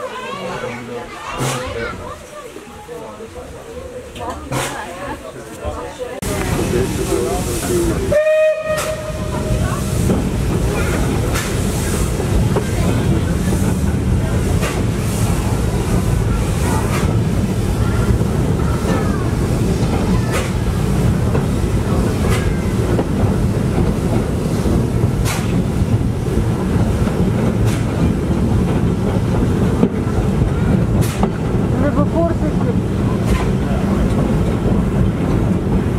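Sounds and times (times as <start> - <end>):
steam train rumble: 1.3 - 35.9.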